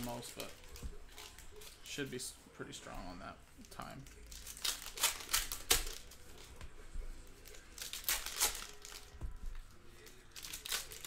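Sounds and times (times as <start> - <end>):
wrappers crinkling and tearing: 0.0 - 2.1, 3.6 - 6.5, 7.4 - 9.2, 9.9 - 11.0.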